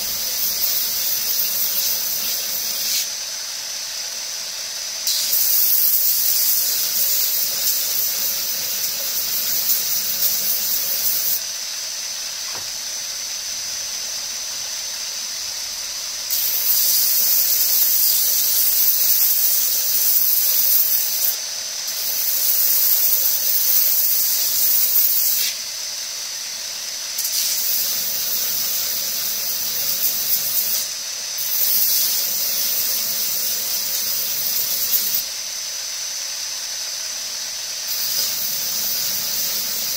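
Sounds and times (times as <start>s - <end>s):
belt grinder whining: 0.0s - 2.9s
hissing rasp of grinding: 0.0s - 3.2s, 5.0s - 11.4s, 16.3s - 25.6s, 27.2s - 35.3s, 37.9s - 39.9s.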